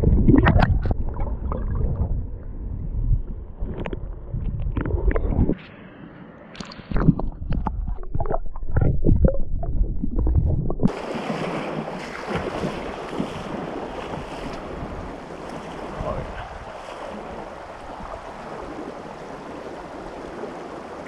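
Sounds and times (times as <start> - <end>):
muffled underwater sloshing: 0.0 - 5.6, 6.8 - 21.0
stream rushing: 10.9 - 21.0.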